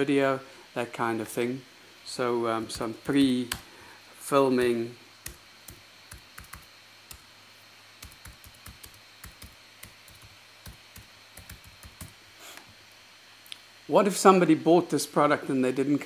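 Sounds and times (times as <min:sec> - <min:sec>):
computer keyboard typing: 0:04.6 - 0:07.2, 0:08.0 - 0:12.2.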